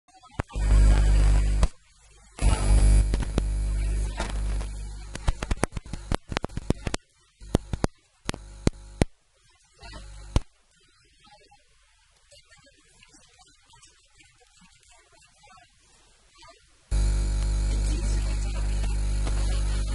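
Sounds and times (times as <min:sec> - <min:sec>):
sharp crackling clicks: 0:00.4 - 0:01.8, 0:02.4 - 0:09.1, 0:09.8 - 0:10.5, 0:16.9 - 0:17.7
electrical mains hum: 0:00.4 - 0:09.1, 0:09.8 - 0:10.5, 0:16.9 - 0:19.9.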